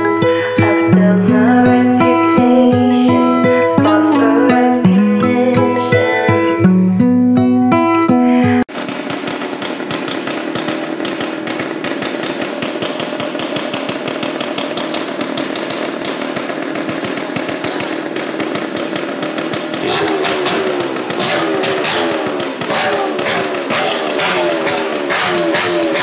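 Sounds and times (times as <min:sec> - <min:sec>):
music: 0:00.0 - 0:08.7
small motorcycle engine buzzing: 0:00.0 - 0:26.0.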